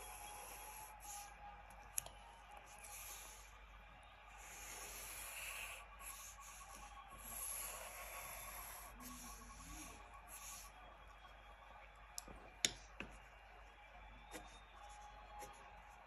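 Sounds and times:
pencil scratching on paper: 0.0s - 1.3s, 4.3s - 10.8s, 14.3s - 16.0s.

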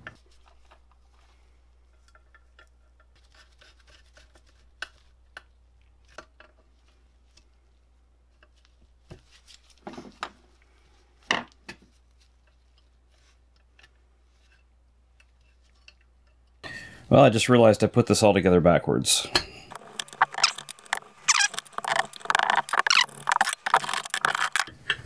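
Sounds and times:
small metal parts clicking and scraping: 19.7s - 24.8s.

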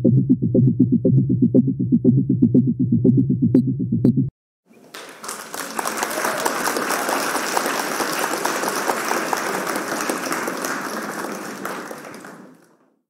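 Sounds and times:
crowd applause: 4.8s - 13.0s.

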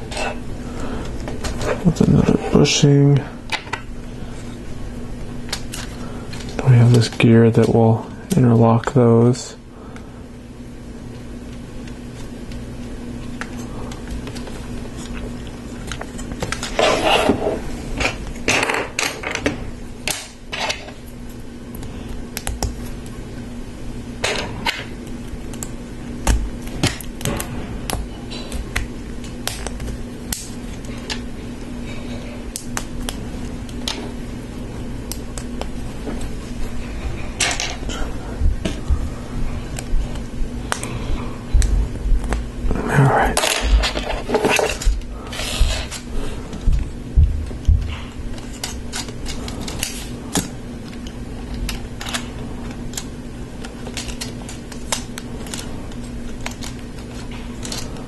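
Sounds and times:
steady low hum: 0.0s - 58.0s
plastic pieces clicking and rattling: 48.4s - 57.9s.

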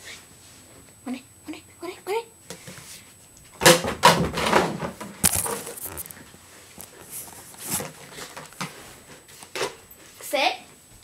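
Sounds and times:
frisbee clatter: 5.1s - 6.2s
dog scrambling on carpet: 5.2s - 6.2s.

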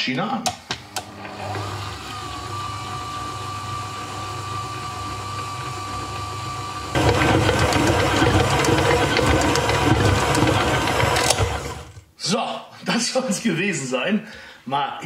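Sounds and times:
stand mixer kneading dough: 1.0s - 12.0s.

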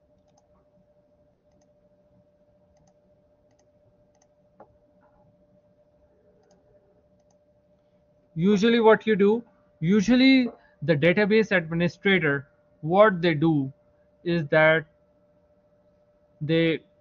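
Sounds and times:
faint steady hum: 0.0s - 17.0s
faint small clicks: 0.2s - 0.6s, 1.5s - 1.8s, 2.7s - 5.2s, 6.4s - 7.4s.

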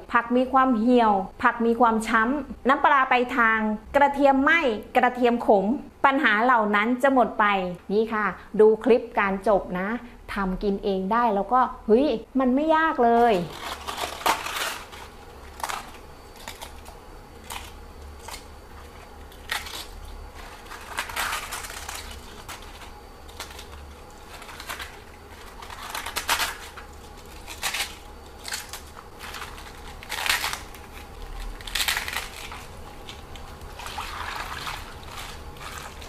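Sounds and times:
cabbage leaves tearing: 13.1s - 36.0s.

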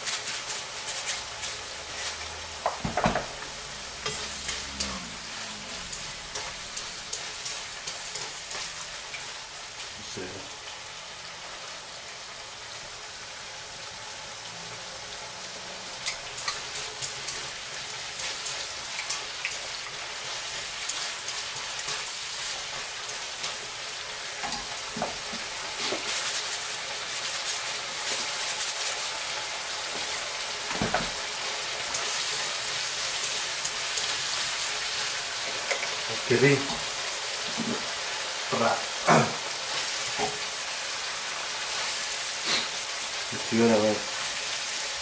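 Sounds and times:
beef sizzling in pan: 0.0s - 45.0s
spattering crackles: 16.0s - 36.7s.

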